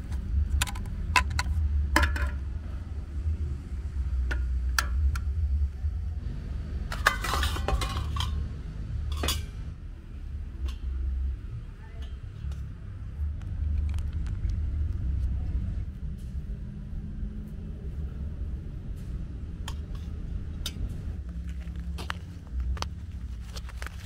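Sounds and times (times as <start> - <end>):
metal spoon scraping steel plate: 6.9 - 8.4.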